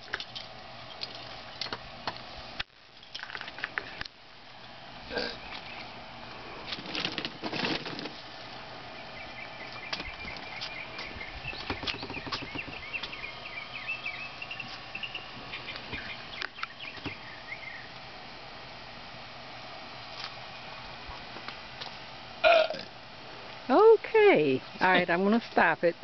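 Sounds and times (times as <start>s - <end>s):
golf cart humming: 3.4s - 25.4s
bird chirping: 5.1s - 6.0s, 8.9s - 18.0s
knocks and rattles: 11.6s - 12.9s.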